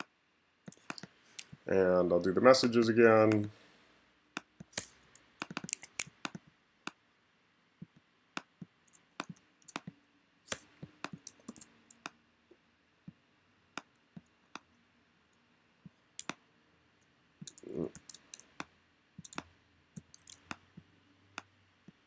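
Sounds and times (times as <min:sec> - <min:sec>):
computer mouse clicks: 0:00.0 - 0:01.6, 0:04.4 - 0:07.0, 0:07.8 - 0:12.2, 0:16.2 - 0:16.4, 0:17.4 - 0:20.6.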